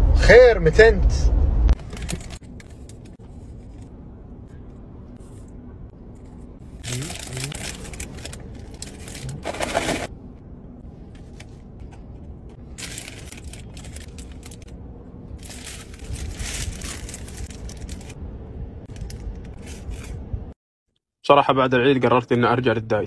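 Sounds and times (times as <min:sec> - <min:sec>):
low rumble: 0:00.0 - 0:20.6
paper wrappers crinkling: 0:01.8 - 0:03.9, 0:06.8 - 0:10.1, 0:12.8 - 0:14.7, 0:15.4 - 0:18.2.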